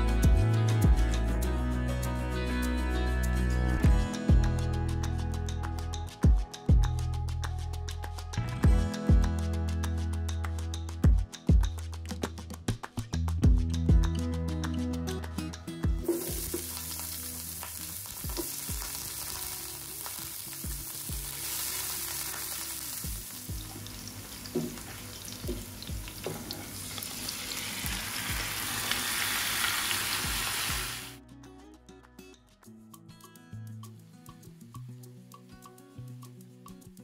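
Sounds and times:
soft background music: 0:00.0 - 0:12.6, 0:13.2 - 0:37.0
onions sizzling in hot oil: 0:16.0 - 0:31.2.

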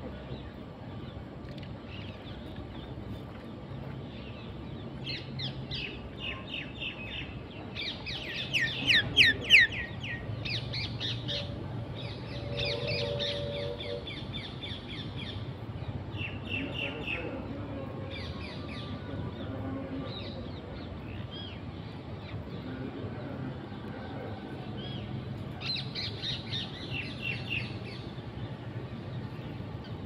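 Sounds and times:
birds chirping and squawking: 0:05.1 - 0:15.4.

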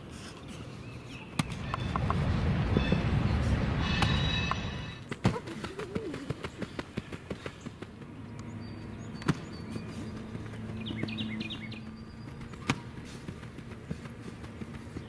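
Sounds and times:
steady low hum: 0:00.0 - 0:15.0
bird chirps: 0:00.5 - 0:05.1, 0:08.3 - 0:13.1.

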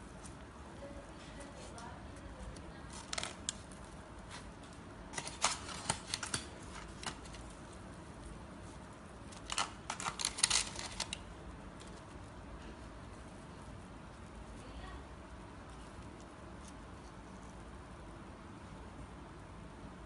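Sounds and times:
aluminium foil crinkling: 0:00.0 - 0:17.7
bread tearing: 0:02.8 - 0:12.3.

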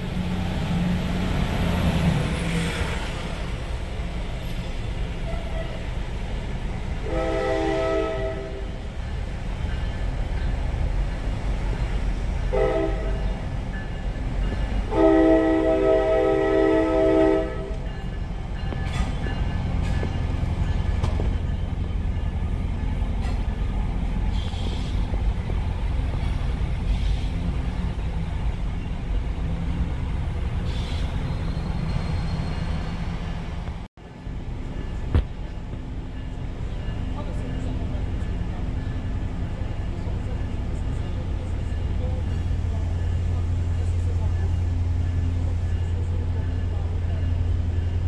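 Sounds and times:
train low rumble: 0:00.0 - 0:48.0
train horn blasts: 0:07.0 - 0:08.8, 0:12.5 - 0:13.4, 0:14.8 - 0:18.2.

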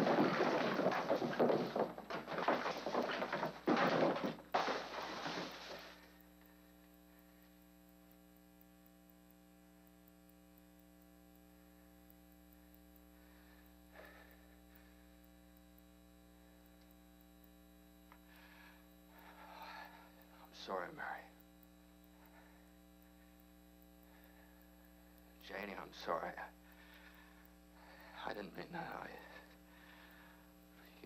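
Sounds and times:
loud clattering crash: 0:00.0 - 0:06.0
electrical hum: 0:00.0 - 0:31.0.

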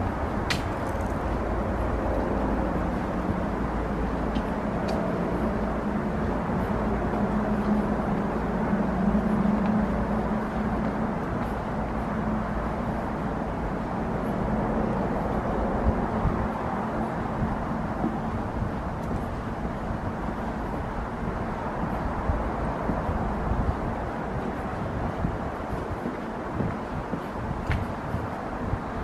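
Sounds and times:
distant city traffic: 0:00.0 - 0:29.0.

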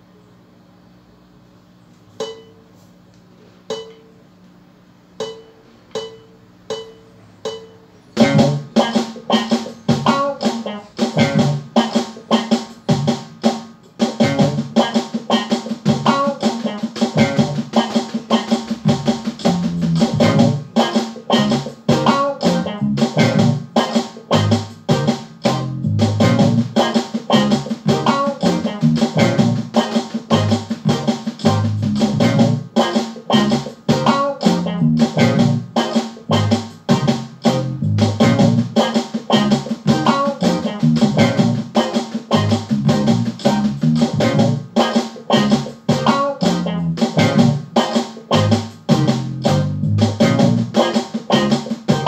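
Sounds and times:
count-in clicks: 0:03.7 - 0:04.1, 0:05.2 - 0:10.8
backing track with guitar and drums: 0:07.5 - 0:52.0
snare drum played with sticks: 0:07.5 - 0:52.0.

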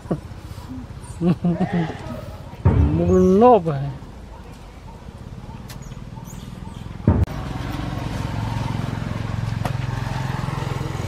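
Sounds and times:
engine humming: 0:00.0 - 0:11.0
low thump: 0:02.6 - 0:03.2, 0:07.0 - 0:07.3.

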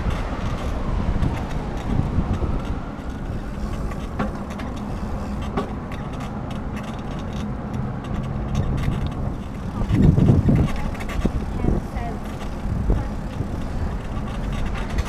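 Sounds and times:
tyres rushing on pavement: 0:00.0 - 0:15.0
air over microphone: 0:08.6 - 0:15.0.

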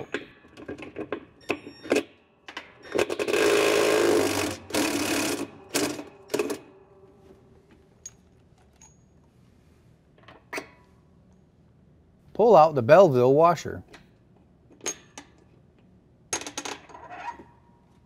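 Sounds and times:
drill fast rattling whir: 0:02.9 - 0:06.0.

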